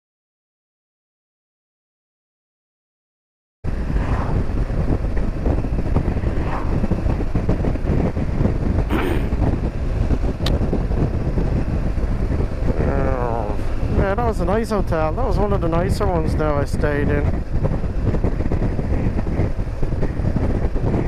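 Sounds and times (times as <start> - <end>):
wind rushing over microphone: 3.6 - 21.0.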